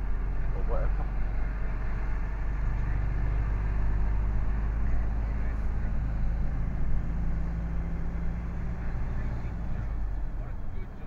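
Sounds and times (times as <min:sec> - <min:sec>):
lorry engine running: 0:00.0 - 0:11.0
road noise: 0:00.0 - 0:11.0.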